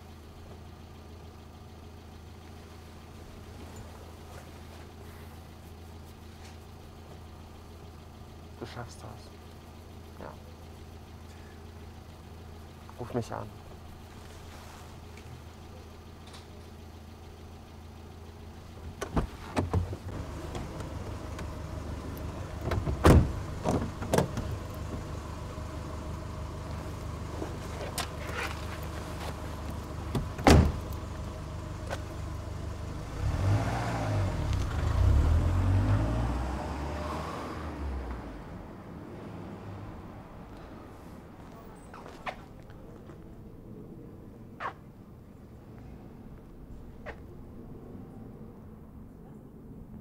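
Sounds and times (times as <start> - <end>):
car engine running: 0.0 - 49.2
car doors opening and shutting: 18.8 - 25.1, 27.3 - 32.2
car door slams: 19.0 - 21.5, 22.6 - 24.6, 30.1 - 30.9.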